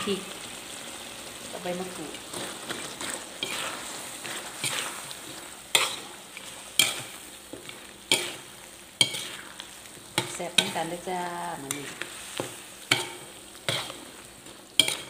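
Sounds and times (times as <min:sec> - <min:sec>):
food sizzling in a wok: 0:00.0 - 0:15.0
spatula scraping a wok: 0:01.7 - 0:15.0
spatula striking a wok: 0:05.7 - 0:09.5, 0:10.1 - 0:14.0, 0:14.8 - 0:15.0.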